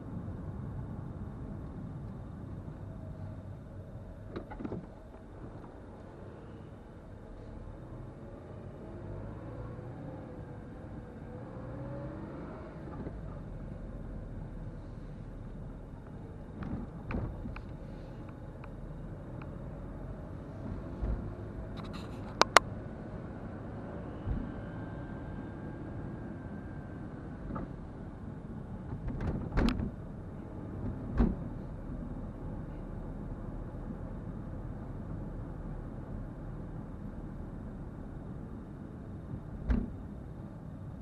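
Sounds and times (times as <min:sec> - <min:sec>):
car road and engine rumble: 0:00.0 - 0:41.0
sharp clicks and knocks: 0:21.8 - 0:22.7.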